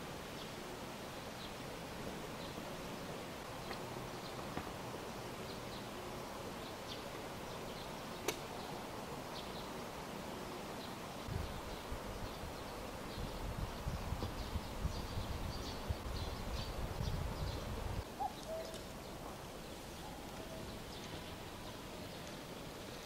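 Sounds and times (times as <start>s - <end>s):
steady hiss: 0.0s - 23.0s
sharp click: 8.2s - 8.4s.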